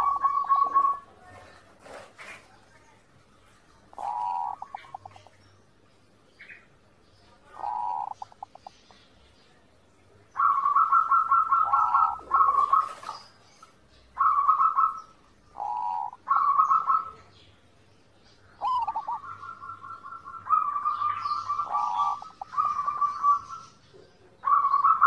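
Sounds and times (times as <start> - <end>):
dove cooing: 0.0 - 2.3, 3.9 - 5.3, 7.5 - 8.7, 10.4 - 13.4, 14.2 - 17.3, 18.6 - 23.8, 24.4 - 25.0.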